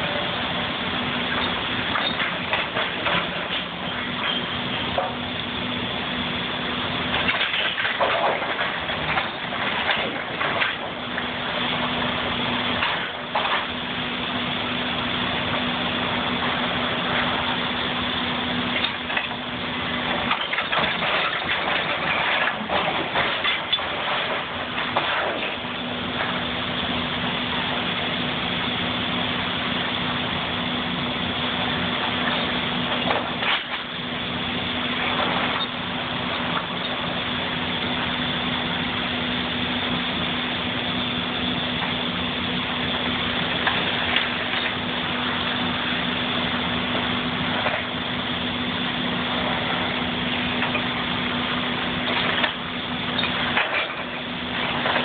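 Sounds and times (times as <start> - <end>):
excavator diesel engine hum: 0.0 - 55.0
timber and metal crashing: 1.3 - 5.2, 7.1 - 12.1, 12.7 - 13.8, 18.8 - 28.1, 32.0 - 37.2, 49.1 - 55.0.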